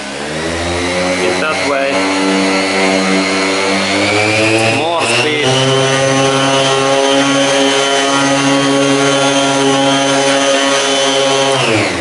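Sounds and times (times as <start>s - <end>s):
orbital sander motor whining: 0.0s - 12.0s.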